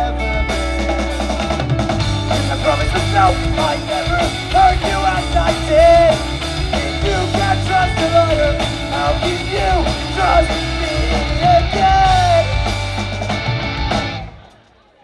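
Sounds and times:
person singing lead vocal: 0.0s - 1.5s, 2.3s - 12.8s
pop-punk band playing: 0.0s - 14.6s.

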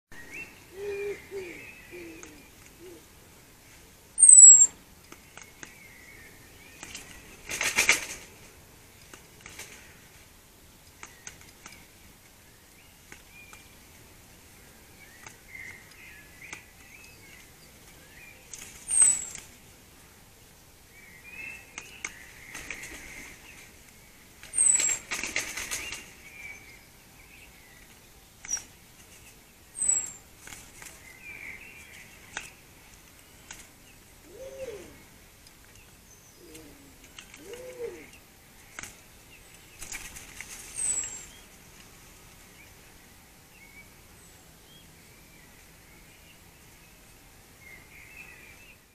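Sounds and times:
distant birdsong: 0.1s - 48.9s
bird whistle notes: 4.2s - 4.7s
wings flapping rustle: 6.7s - 10.3s, 15.2s - 19.8s, 21.7s - 26.4s, 27.8s - 35.7s, 36.4s - 42.5s.

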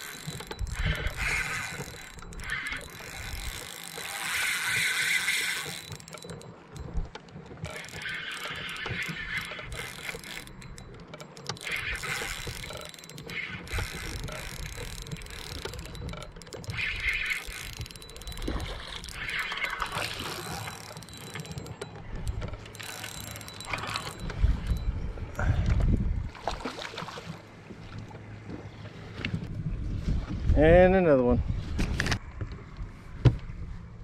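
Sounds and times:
spinning reel cranking: 0.0s - 25.0s
constant low rumble: 0.0s - 34.0s.

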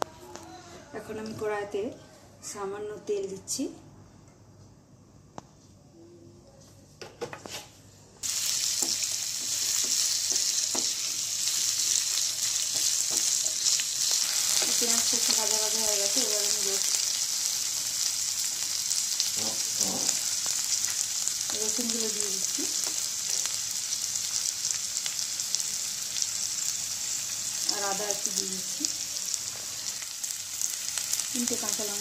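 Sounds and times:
onions sizzling in hot oil: 8.2s - 32.0s
spatula stirring and scraping: 8.6s - 14.8s.

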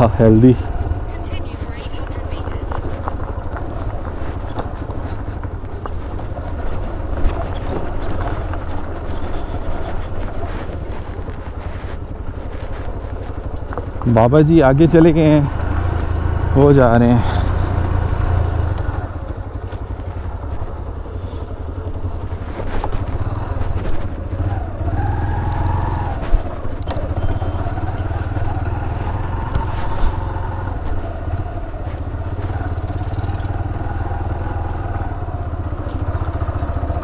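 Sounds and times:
small motorcycle engine running: 0.0s - 37.0s.

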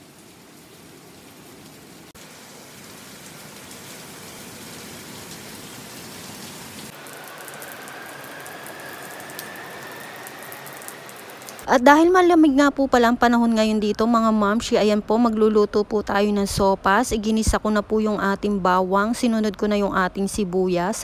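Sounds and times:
steady rain falling: 0.0s - 11.7s
faint thin rising tone: 7.0s - 11.6s.

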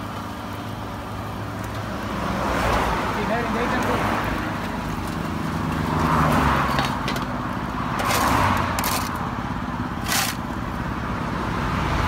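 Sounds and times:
low engine hum: 0.0s - 12.0s
passing traffic: 0.0s - 12.0s
shovel scraping asphalt: 7.9s - 9.3s, 9.9s - 10.6s.

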